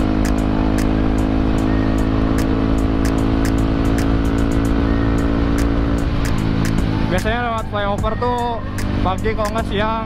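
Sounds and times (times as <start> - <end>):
motorcycle engine cruising: 0.0 - 10.0.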